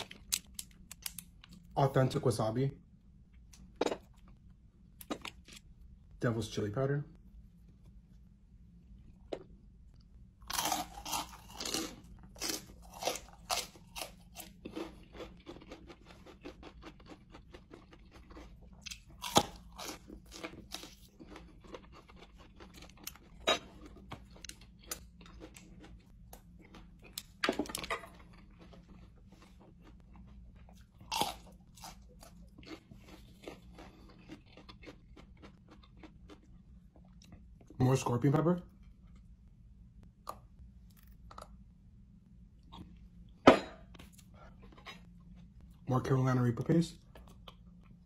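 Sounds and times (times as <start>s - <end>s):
crunching and chewing peppers: 0.0s - 1.9s, 10.4s - 39.4s, 44.0s - 45.9s, 46.9s - 48.0s.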